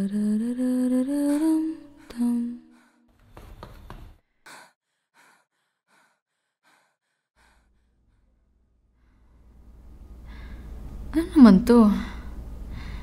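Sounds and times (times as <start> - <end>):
quick breathing: 2.7 - 8.4
low hum: 7.4 - 13.0.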